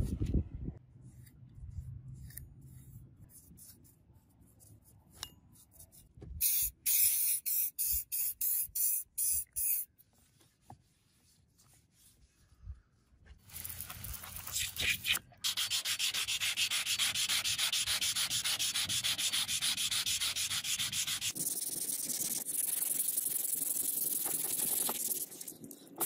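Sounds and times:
spray bottle squirting water: 0:06.4 - 0:09.9, 0:13.4 - 0:16.7, 0:19.8 - 0:26.0
faint brushing on metal: 0:10.0 - 0:26.0.

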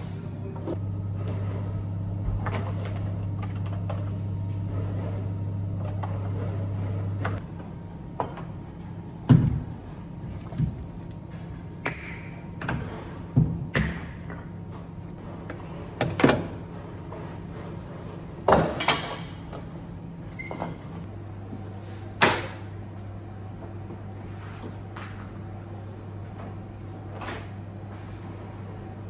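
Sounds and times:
low hum: 0:00.0 - 0:12.5.

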